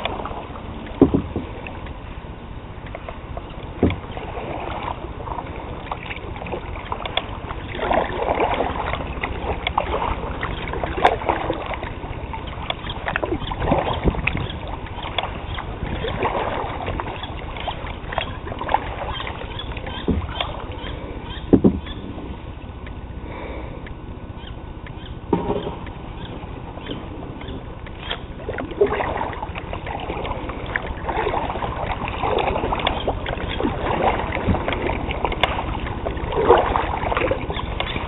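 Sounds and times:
paddle splashing in water: 0.0 - 22.5, 24.4 - 38.0
sharp knocks: 1.0 - 1.5, 21.5 - 21.9.

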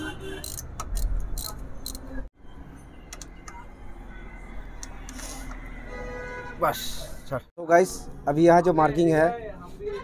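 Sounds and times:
ratchet wrench clicking: 0.4 - 2.2.

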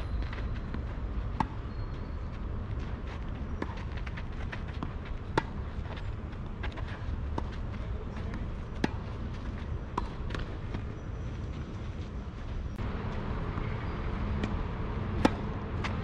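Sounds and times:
steady low rumble: 0.0 - 16.0
tennis ball bouncing: 0.3 - 1.8, 3.6 - 9.2, 9.9 - 10.7, 13.0 - 16.0
tennis racket hitting ball: 15.2 - 16.0.

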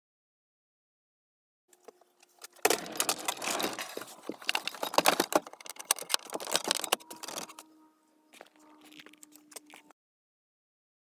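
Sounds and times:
cabinet rolling on casters: 2.7 - 7.8.

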